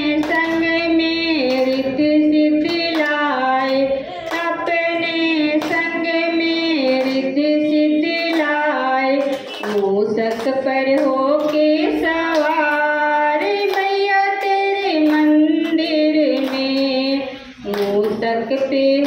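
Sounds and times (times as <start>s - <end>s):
listeners clapping along: 0.0s - 19.0s
woman singing into a microphone: 0.0s - 19.0s.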